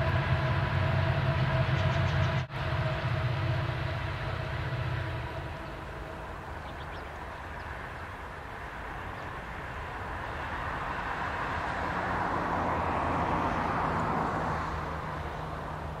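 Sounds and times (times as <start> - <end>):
steady low hum: 0.0 - 10.2
freight train wheels rumbling: 0.0 - 16.0.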